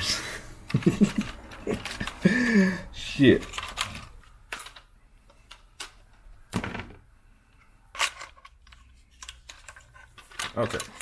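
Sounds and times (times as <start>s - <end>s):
plastic parts clicking and knocking: 3.3s - 7.0s, 7.9s - 11.0s.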